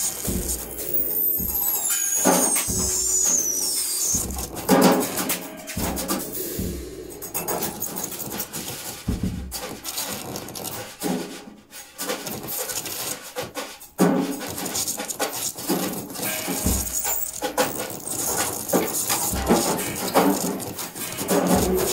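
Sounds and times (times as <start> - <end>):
improvised percussion music: 0.0 - 9.8, 15.8 - 21.9
low thuds: 4.1 - 7.9.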